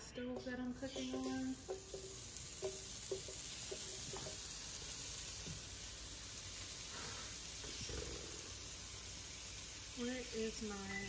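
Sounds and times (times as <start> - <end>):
pan sizzling: 0.0 - 11.0.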